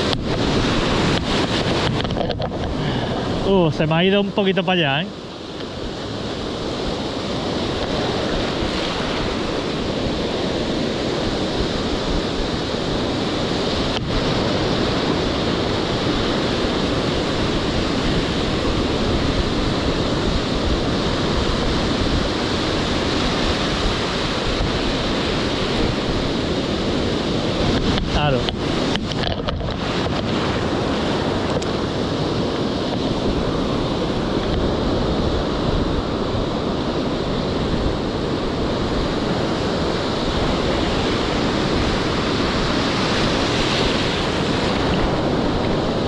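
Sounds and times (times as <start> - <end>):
surf breaking on shore: 0.0 - 46.0
wind buffeting microphone: 0.0 - 46.0.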